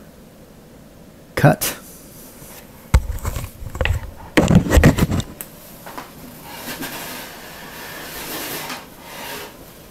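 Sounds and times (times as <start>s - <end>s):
rubbing and scraping: 2.3s - 5.4s, 6.4s - 9.6s.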